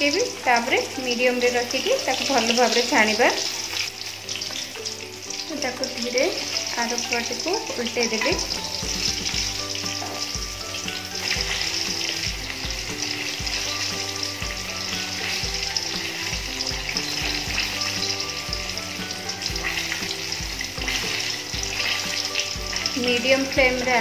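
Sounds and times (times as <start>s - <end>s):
chicken deep-frying in oil: 0.0s - 24.0s
background music with beat: 8.2s - 24.0s.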